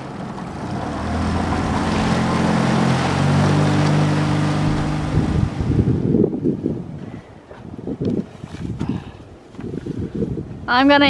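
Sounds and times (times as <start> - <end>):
outboard motor running: 0.0 - 6.1
rush of wind and water: 0.0 - 11.0.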